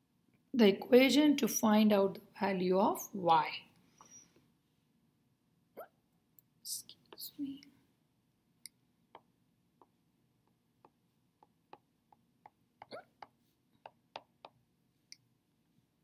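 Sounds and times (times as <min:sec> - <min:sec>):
stylus tapping on glass screen: 0:09.2 - 0:14.6.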